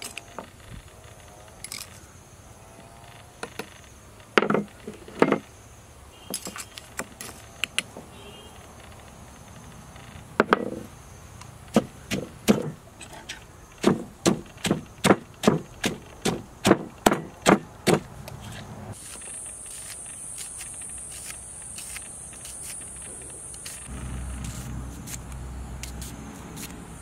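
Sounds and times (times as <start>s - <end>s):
wooden pestle pounding in mortar: 11.7s - 12.8s, 13.8s - 18.1s.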